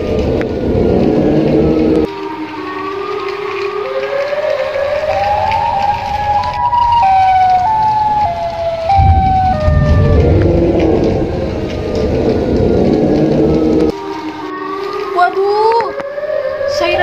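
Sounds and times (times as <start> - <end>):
electronic tune: 8.9 - 11.4.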